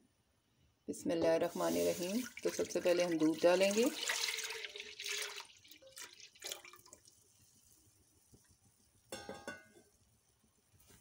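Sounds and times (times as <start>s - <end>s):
milk pouring into a pot: 1.6s - 8.0s
drips: 2.2s - 7.2s.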